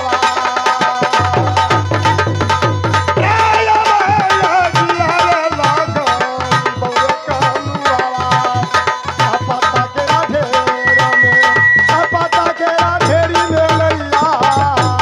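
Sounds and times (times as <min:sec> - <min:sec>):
hand drum fast rhythm: 0:00.0 - 0:15.0
wavering melody: 0:10.1 - 0:14.0.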